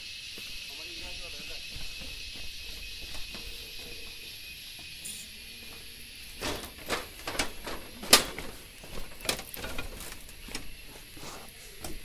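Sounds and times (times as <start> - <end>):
steady high hiss: 0.0 - 12.0
footsteps on metal stairs: 1.5 - 5.0, 5.6 - 11.1.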